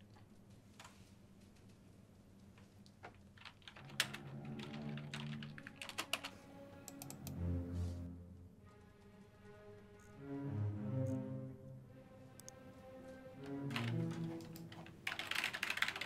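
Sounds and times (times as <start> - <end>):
keyboard typing: 3.1 - 7.4, 13.5 - 16.0
soft background music: 3.7 - 16.0.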